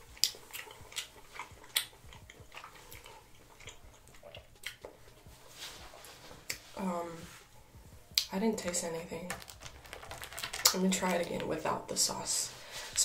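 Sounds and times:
close chewing: 0.0 - 5.4
wet mouth clicks and smacks: 0.1 - 5.0, 9.5 - 10.8.

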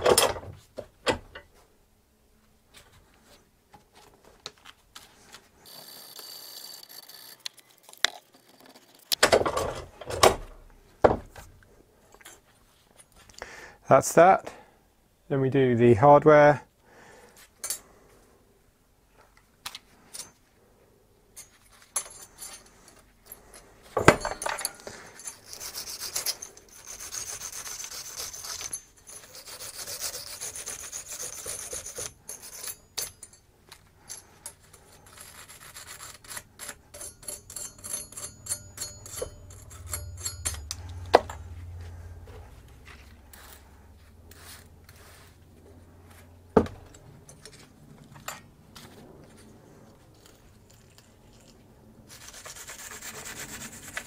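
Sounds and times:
wire brush scrubbing metal: 25.1 - 32.9, 34.8 - 40.8, 52.1 - 54.0.

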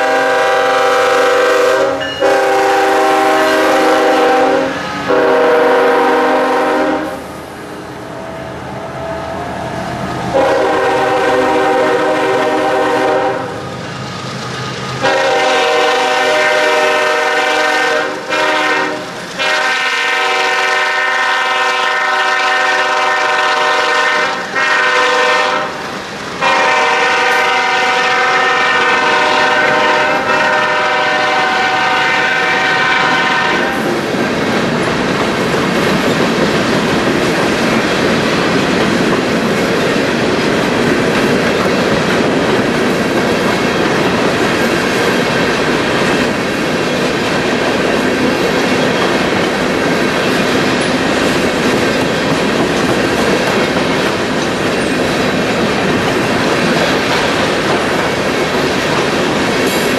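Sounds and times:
locomotive air horn: 0.0 - 7.4, 8.9 - 13.6, 15.0 - 33.9
train cars rumbling past: 0.0 - 59.9.

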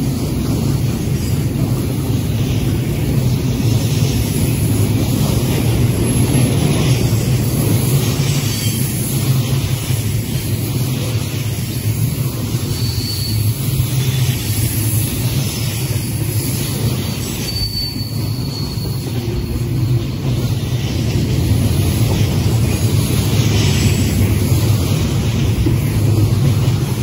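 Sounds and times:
train wheels rumbling on rails: 0.0 - 27.0
wheel squeal: 8.0 - 9.2, 12.2 - 20.9.

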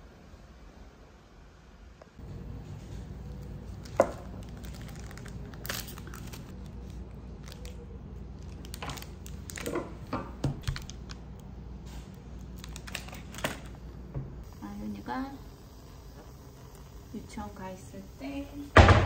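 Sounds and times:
plastic wrapper crinkling: 3.3 - 11.5, 12.1 - 13.8.

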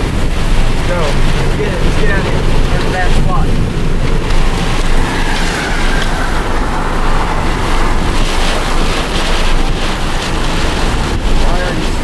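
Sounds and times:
low rumble: 0.0 - 12.0
strong wind buffeting microphone: 0.0 - 12.0.

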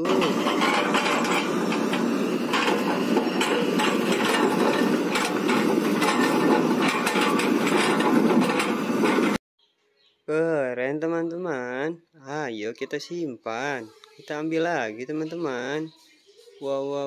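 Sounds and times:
excavator engine running: 0.0 - 9.4
attachment knocking and clanking: 0.2 - 9.4.

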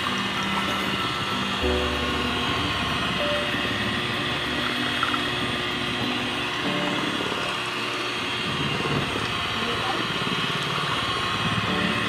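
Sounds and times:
electric hand mixer whirring: 0.0 - 12.0.

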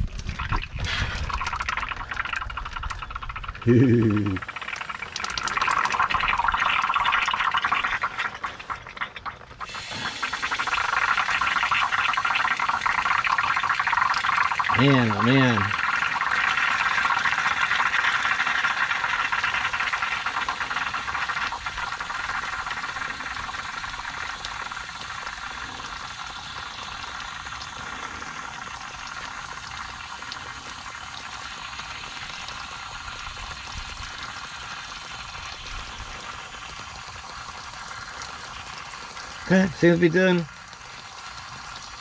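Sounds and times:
cleaner hissing and spluttering through lines: 9.6 - 11.8.

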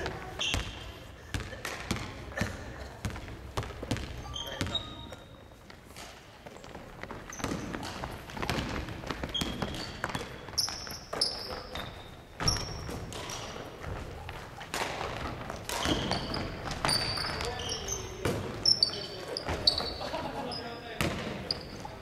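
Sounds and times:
sneakers squeaking: 0.0 - 22.0
basketball bouncing on wooden floor: 0.5 - 4.9, 6.6 - 18.7.

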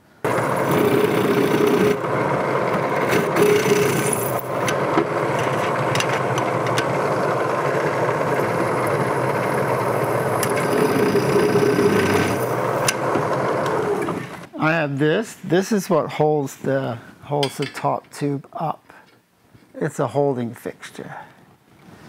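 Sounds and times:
drill press drilling steel: 0.3 - 14.5.

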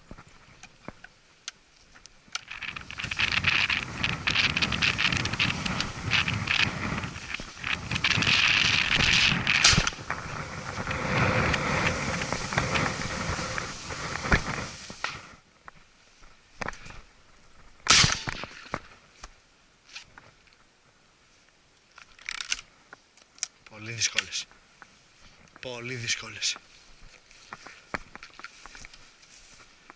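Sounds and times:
gusty wind buffeting microphone: 2.3 - 15.4.

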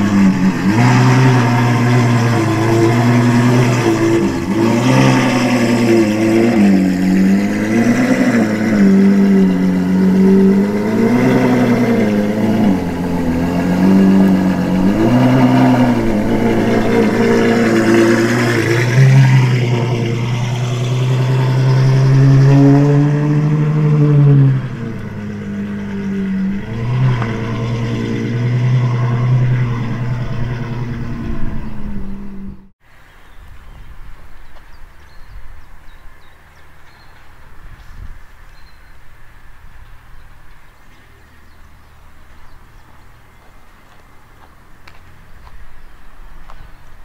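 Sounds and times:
sports car engine revving: 0.0 - 32.7.

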